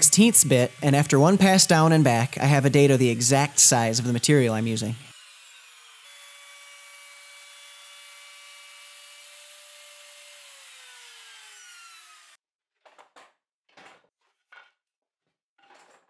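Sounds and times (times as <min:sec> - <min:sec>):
router whining: 0:00.0 - 0:12.4.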